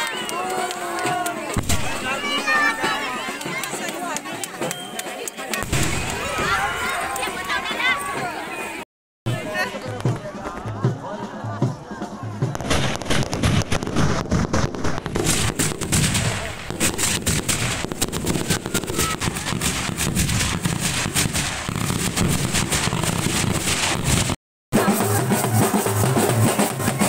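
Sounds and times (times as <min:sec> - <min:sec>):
firecrackers going off: 0:00.0 - 0:08.4, 0:12.5 - 0:27.0
drumming: 0:00.0 - 0:08.6, 0:09.3 - 0:27.0
festival music: 0:09.3 - 0:27.0.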